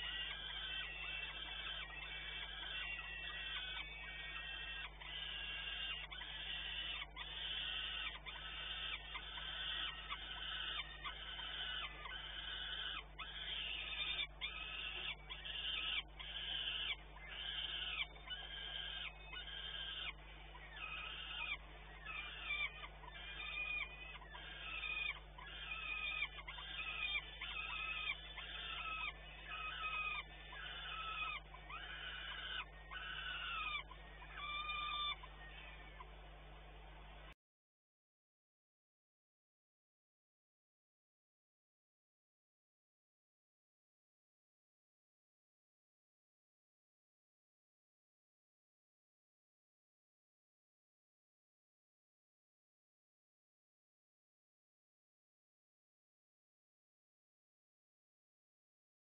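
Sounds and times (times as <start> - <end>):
falcon chick begging screeches: 0.0 - 36.2
low electrical hum: 0.0 - 37.4.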